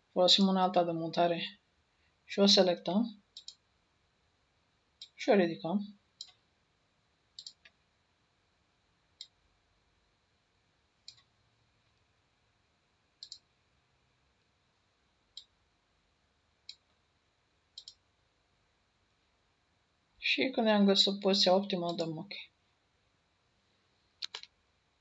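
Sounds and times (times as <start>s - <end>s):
computer mouse clicking: 3.4s - 3.6s, 6.2s - 6.4s, 7.4s - 7.8s, 11.0s - 11.3s, 13.2s - 13.5s, 17.8s - 18.0s, 24.2s - 24.5s.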